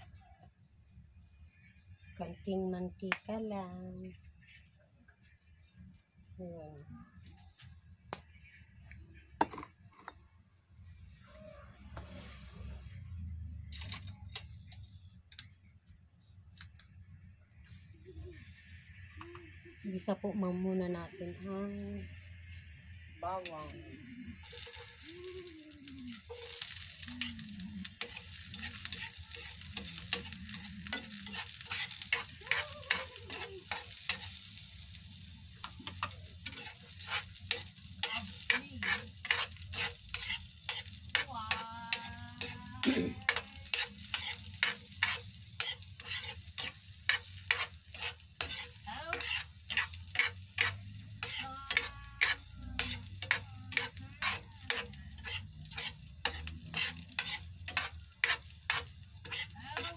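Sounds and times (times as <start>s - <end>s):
metal spatula scraping pan: 24.4s - 25.1s, 25.8s - 35.0s, 35.6s - 59.9s
garlic sizzling in frying pan: 24.4s - 59.9s.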